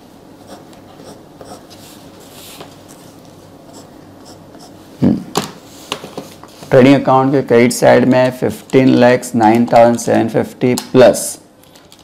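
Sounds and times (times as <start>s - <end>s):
pen scratching on paper: 0.5s - 1.7s.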